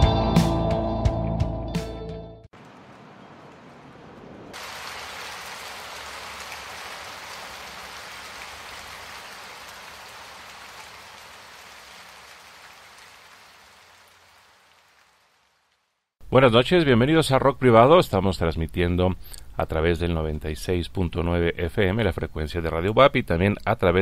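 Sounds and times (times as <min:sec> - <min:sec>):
falling rain hiss: 0:02.6 - 0:16.2.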